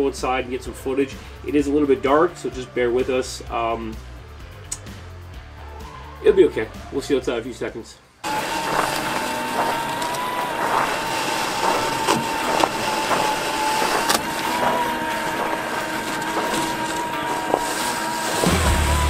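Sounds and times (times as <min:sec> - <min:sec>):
toy car electric motor whining: 0:08.2 - 0:19.0
crunching clicks in snow: 0:08.3 - 0:19.0.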